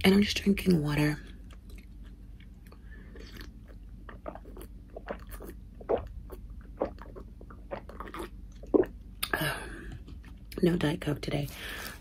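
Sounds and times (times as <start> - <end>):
swallowing gulps: 1.5 - 10.4.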